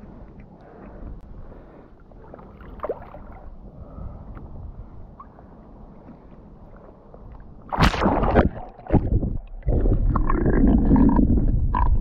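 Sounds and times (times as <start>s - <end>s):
river water sloshing and splashing: 2.2s - 3.6s, 7.6s - 9.8s.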